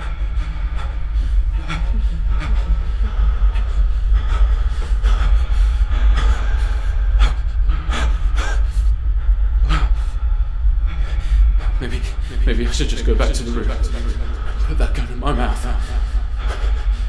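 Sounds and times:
man gasping and breathing hard: 0.0s - 17.0s
steady low rumble: 0.0s - 17.0s.

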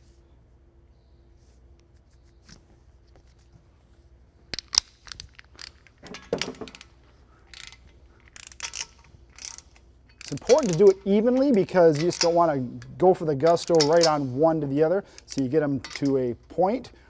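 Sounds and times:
ratchet wrench clicking on metal: 4.6s - 6.9s, 7.5s - 14.3s, 15.1s - 16.3s.

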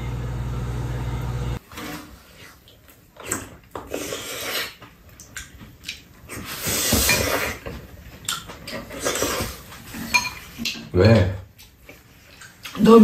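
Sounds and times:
slurping soup: 1.6s - 7.7s, 8.7s - 10.5s.

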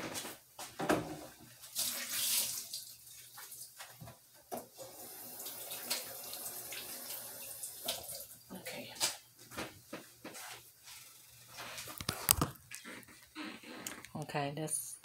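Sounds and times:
tap water running into sink: 4.5s - 8.2s.

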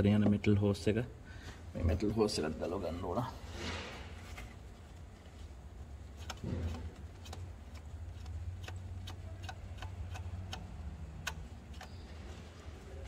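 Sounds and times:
steady low hum: 0.0s - 13.0s
sharp metallic tool clicks: 8.2s - 12.0s.

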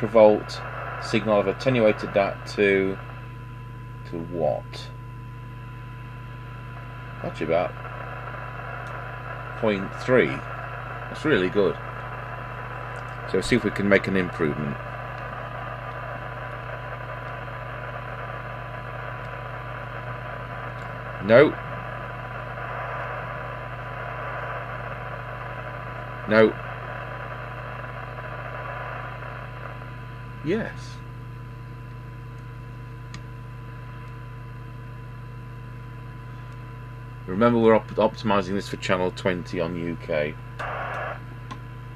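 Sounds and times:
low hum: 0.0s - 41.9s
radio hiss: 0.0s - 41.9s
steady test tone: 7.1s - 29.8s.

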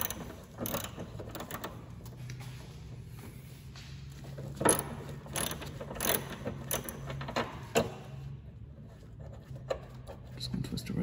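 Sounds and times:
hand ratchet clicking: 0.0s - 1.7s, 4.6s - 7.5s
steady low hum: 0.0s - 11.0s.

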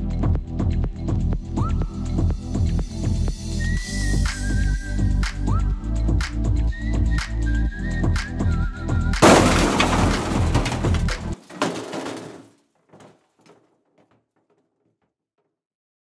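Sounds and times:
electronic music with whistled melody: 1.4s - 9.2s
loud crash clattering: 9.2s - 13.1s.

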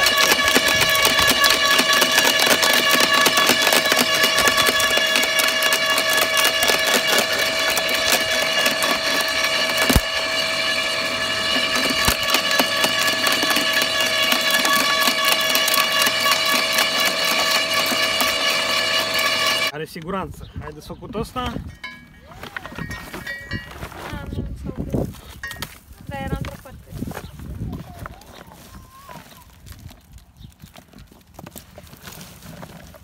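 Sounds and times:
branches crackling and splintering: 0.0s - 19.7s, 25.0s - 33.0s
garden shredder whine: 0.0s - 20.2s.

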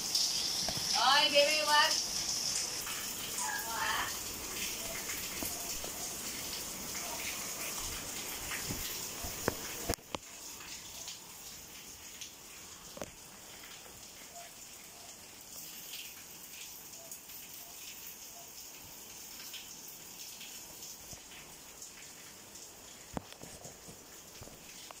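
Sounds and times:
steady rain hiss: 0.0s - 25.0s.

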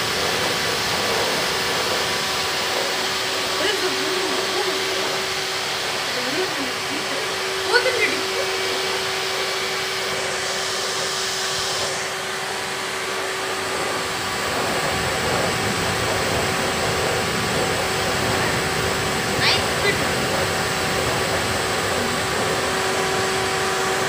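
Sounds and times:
vacuum cleaner running: 0.0s - 24.0s.

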